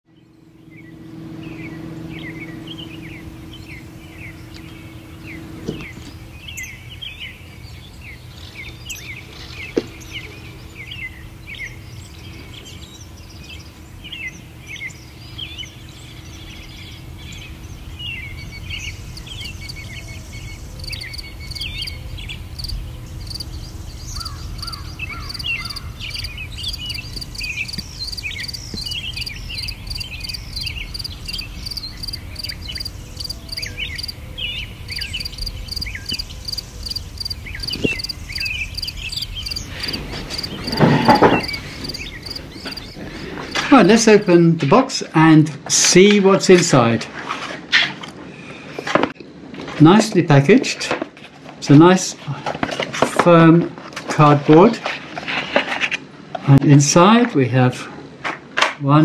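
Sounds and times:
low outdoor rumble: 0.1 - 44.7
birds chirping: 0.1 - 45.4
pulsing cricket-like chirr: 0.3 - 9.2, 13.9 - 44.3.

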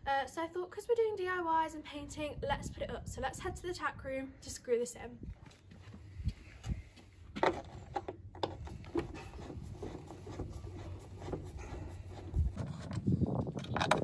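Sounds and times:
light scraping: 7.4 - 14.0.

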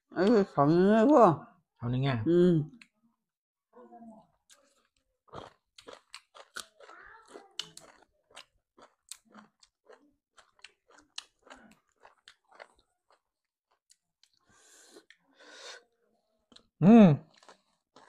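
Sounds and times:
chewing and crunching food: 4.2 - 15.4, 16.3 - 18.0.

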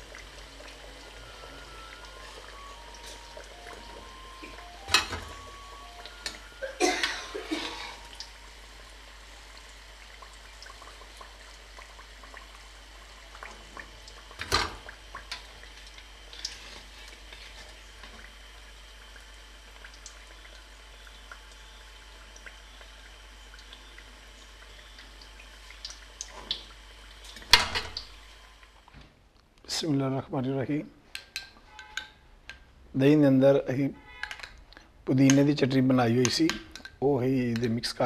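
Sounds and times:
food deep-frying in oil: 0.0 - 29.0.

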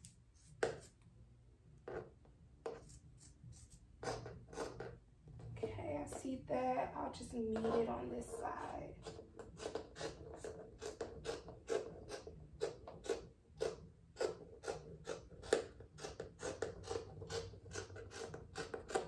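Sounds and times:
scissors snipping fabric: 9.0 - 19.0.

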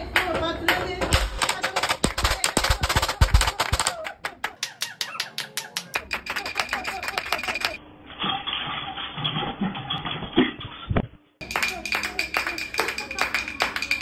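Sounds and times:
hands clapping rhythmically: 0.1 - 7.8, 11.4 - 14.0.

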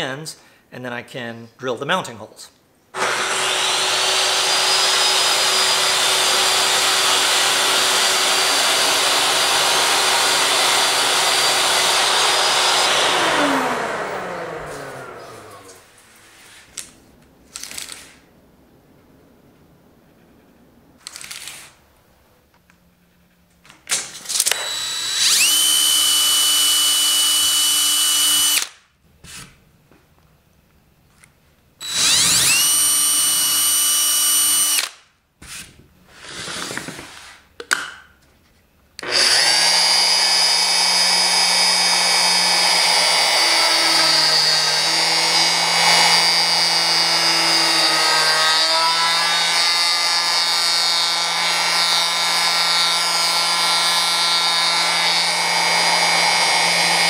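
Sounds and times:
electric drill whining: 3.0 - 15.9, 24.3 - 28.8, 31.8 - 34.9, 39.0 - 57.0
router running: 3.0 - 15.9, 24.4 - 28.7, 31.8 - 34.9, 39.0 - 57.0.

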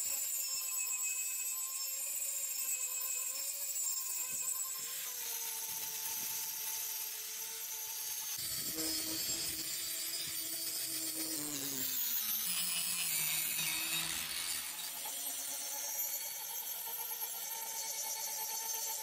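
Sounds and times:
angle grinder grinding steel: 4.1 - 17.6.

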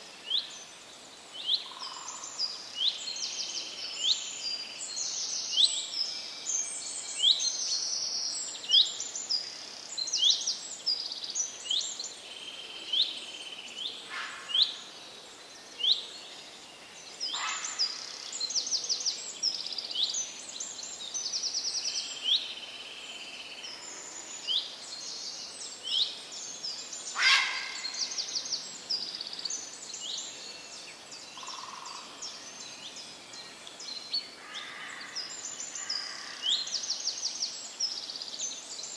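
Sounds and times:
songbirds chirping and twittering: 0.0 - 38.9.

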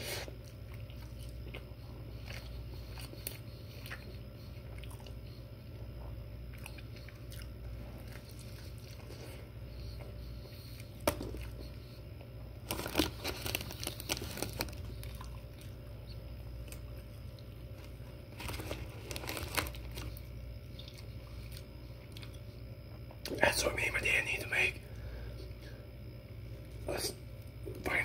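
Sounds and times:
low steady hum: 0.0 - 28.0
chewing: 0.1 - 23.4
paper wrapper crinkling: 12.6 - 15.2, 17.8 - 20.3.

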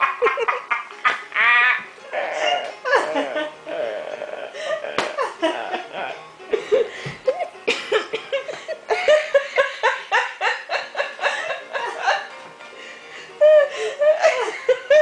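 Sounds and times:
adults laughing: 0.0 - 1.7, 4.2 - 12.3, 14.0 - 15.0
background music: 0.0 - 15.0.

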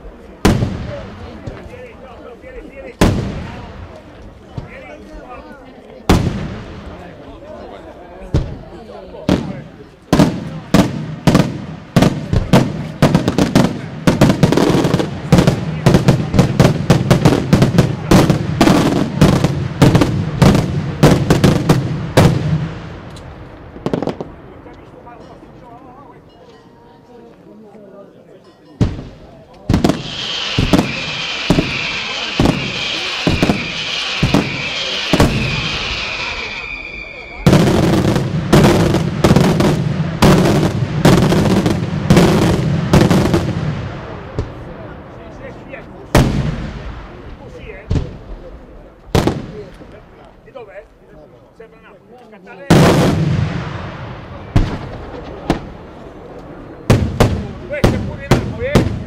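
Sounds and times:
fireworks bursting in sharp bangs: 0.3 - 2.0, 2.8 - 4.9, 6.0 - 7.2, 8.2 - 24.7, 28.8 - 50.2, 52.6 - 59.0
fireworks shells bursting with echo: 28.7 - 44.7.

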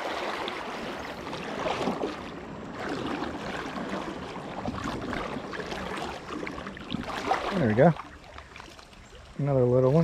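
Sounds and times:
flowing river water: 0.0 - 10.0
wind: 0.0 - 10.0.

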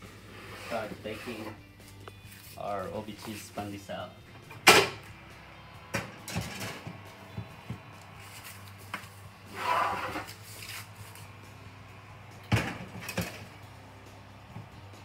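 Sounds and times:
metal tray scraping on oven rack: 0.2 - 1.6, 9.4 - 10.9.

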